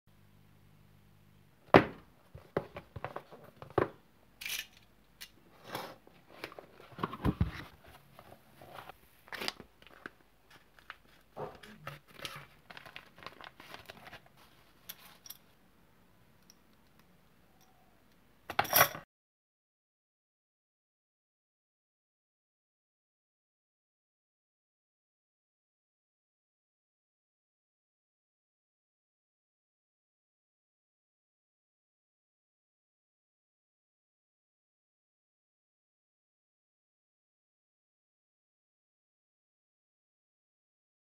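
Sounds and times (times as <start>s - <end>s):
rustling packing material: 5.5s - 15.3s
plastic packaging crinkling: 8.8s - 14.4s.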